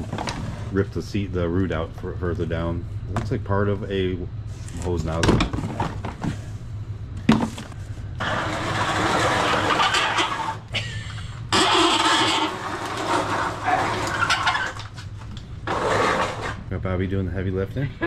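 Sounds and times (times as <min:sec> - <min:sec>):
plastic shelving dragged across floor: 0:00.0 - 0:00.9, 0:08.2 - 0:10.6, 0:11.5 - 0:14.8, 0:15.6 - 0:16.6
cardboard boxes scraping: 0:15.6 - 0:16.6.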